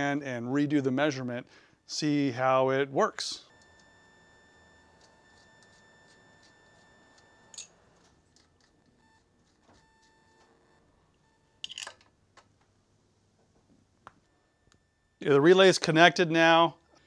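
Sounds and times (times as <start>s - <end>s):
wire terminals clicking and rattling: 6.4s - 10.5s, 11.6s - 12.7s.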